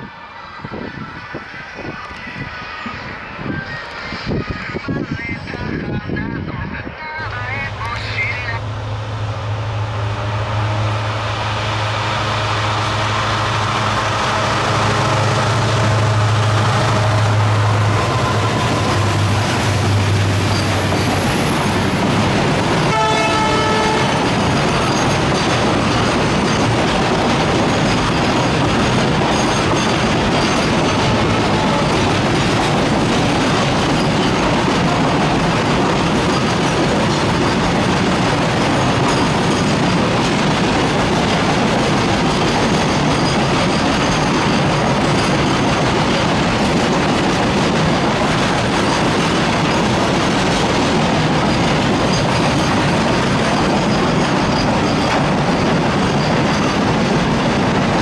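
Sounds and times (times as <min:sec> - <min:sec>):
diesel locomotive engine droning: 0:00.0 - 0:58.0
train horn toot: 0:09.8 - 0:19.3, 0:22.9 - 0:24.3
freight wagons rumbling: 0:10.6 - 0:58.0
wheels clickety-clack: 0:17.9 - 0:58.0.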